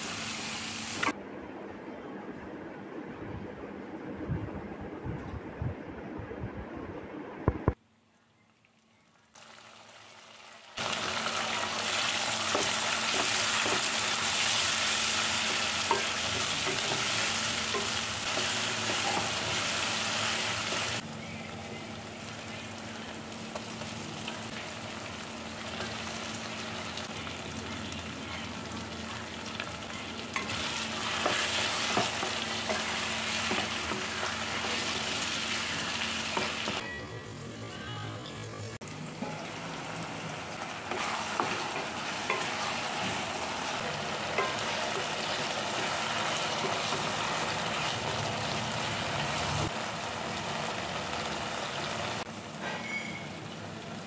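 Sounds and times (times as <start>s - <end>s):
food sizzling in oil: 0.0s - 1.1s, 9.4s - 21.0s, 21.9s - 36.8s, 38.8s - 53.6s
spatula stirring in pan: 30.4s - 36.8s, 40.9s - 48.1s.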